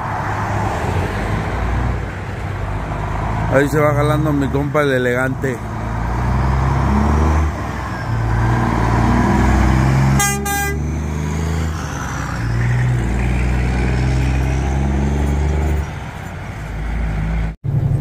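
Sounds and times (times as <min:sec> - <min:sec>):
semi-trucks driving past: 0:00.0 - 0:18.0
truck horn blast: 0:09.4 - 0:11.1.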